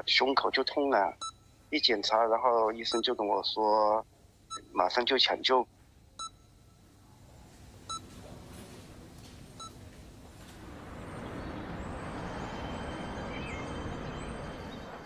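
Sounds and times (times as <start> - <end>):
patient monitor beeping: 0.0 - 15.0
street traffic noise: 7.4 - 15.0.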